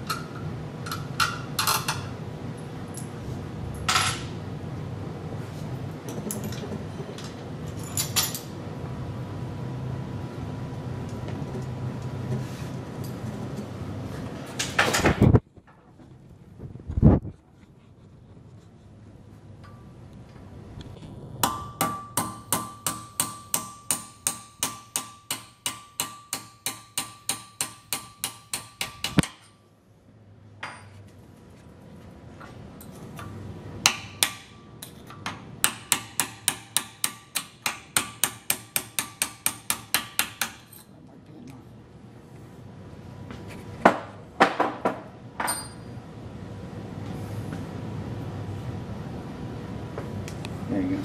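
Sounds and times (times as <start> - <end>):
hammer striking steel punch: 21.4 - 29.6, 33.8 - 40.8.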